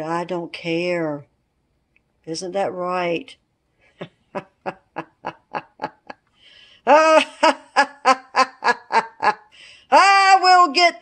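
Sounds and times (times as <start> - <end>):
cackling villain laugh: 4.0 - 6.2, 6.9 - 9.5.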